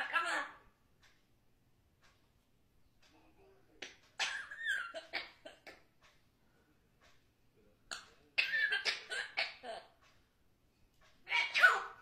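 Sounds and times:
parrot rasping cough-like sounds: 0:04.2 - 0:05.9, 0:07.9 - 0:10.0, 0:11.2 - 0:12.0.

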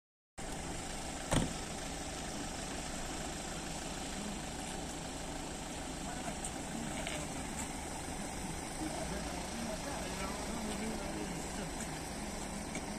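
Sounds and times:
vehicle engine idling: 0:00.4 - 0:12.9
sharp knock: 0:01.3 - 0:01.6
indistinct voices: 0:03.8 - 0:12.9.

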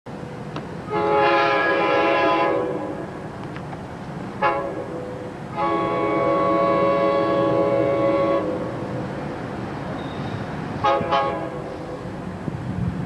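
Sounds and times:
train horn blasts: 0:00.9 - 0:03.3, 0:04.4 - 0:08.8, 0:10.0 - 0:12.1.

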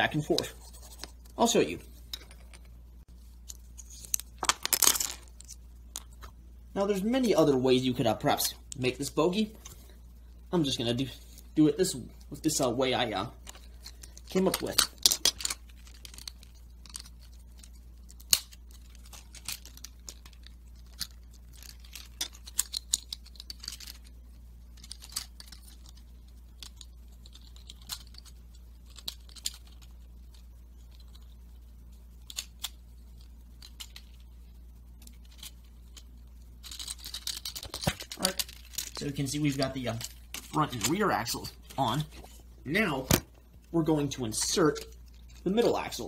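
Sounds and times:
steady low hum: 0:00.0 - 0:46.0
plastic parts clicking: 0:13.4 - 0:24.1, 0:24.8 - 0:31.4, 0:32.2 - 0:34.2, 0:36.6 - 0:42.1.

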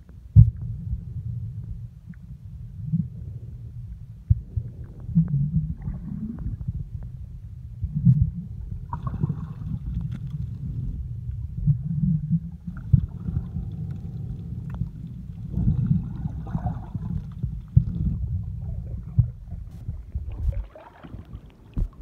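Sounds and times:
underwater rumble of moving water: 0:00.0 - 0:22.0
soft knocks and gurgles: 0:14.6 - 0:22.0.

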